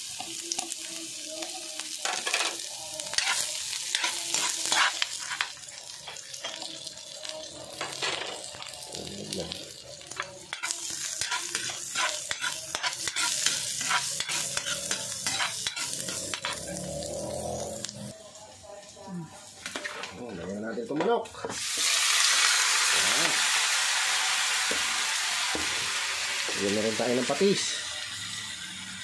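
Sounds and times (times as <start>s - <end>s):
food sizzling in hot oil: 0.0s - 20.1s, 21.5s - 29.0s
metal spatula scraping wok: 2.0s - 6.7s, 10.5s - 17.3s.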